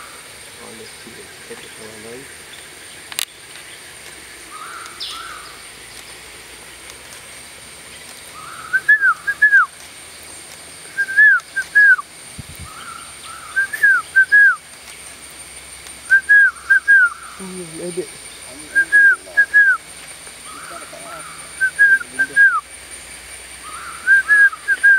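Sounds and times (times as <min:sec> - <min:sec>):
bird whistled calls: 0:04.5 - 0:05.6, 0:08.3 - 0:09.8, 0:10.8 - 0:14.6, 0:16.0 - 0:17.6, 0:18.2 - 0:22.7, 0:23.6 - 0:24.9.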